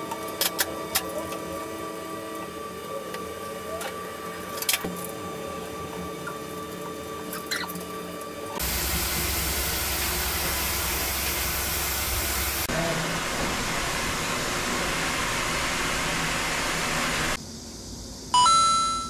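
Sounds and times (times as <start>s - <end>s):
rushing noise with low hum: 8.6s - 17.4s.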